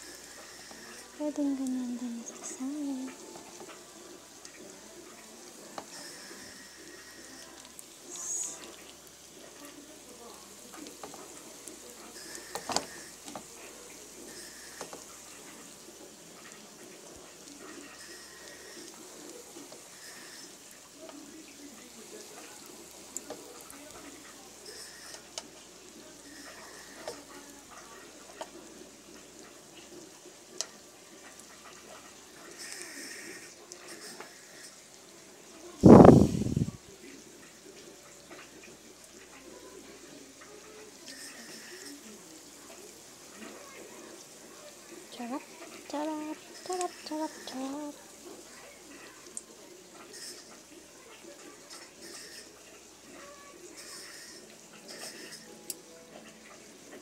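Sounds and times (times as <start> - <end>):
food sizzling in wok: 0.0 - 57.0.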